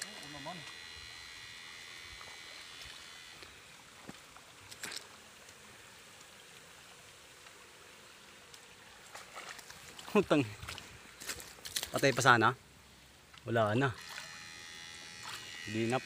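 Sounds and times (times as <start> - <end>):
high electrical whine: 0.0 - 4.2, 13.6 - 16.0
faint flowing river water: 0.0 - 16.0.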